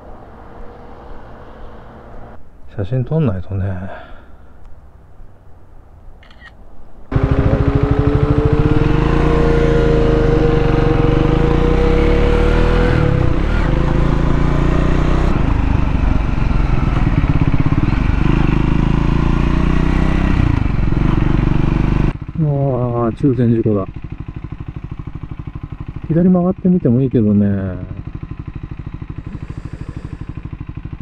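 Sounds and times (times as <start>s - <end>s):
motorcycle engine running: 7.1s - 31.0s.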